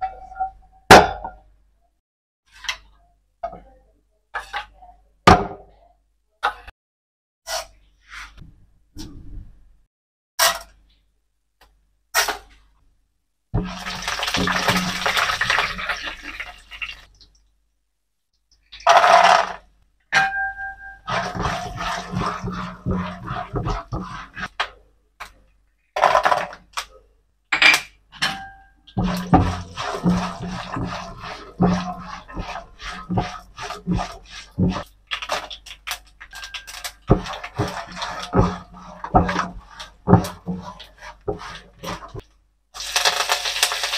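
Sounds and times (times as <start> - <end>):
spatula scraping a pan: 4.4 - 4.8, 7.4 - 8.4, 12.2 - 12.6, 13.6 - 16.6, 20.2 - 24.8, 28.1 - 43.9
food sizzling in oil: 13.6 - 17.2, 42.8 - 43.9.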